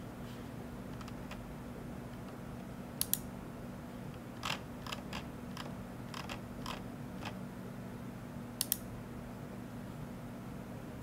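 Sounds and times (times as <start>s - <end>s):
low steady hum: 0.0s - 11.0s
computer mouse clicking: 4.4s - 7.4s.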